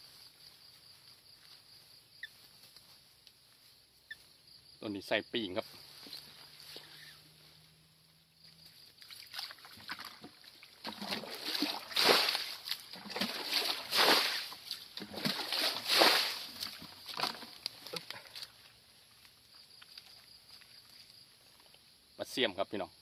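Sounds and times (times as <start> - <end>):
water splashing and sloshing: 8.8 - 18.5.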